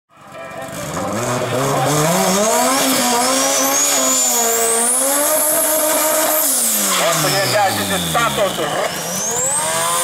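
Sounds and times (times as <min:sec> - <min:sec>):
car engine revving: 0:00.6 - 0:10.0
tyres spinning and squealing: 0:01.6 - 0:10.0.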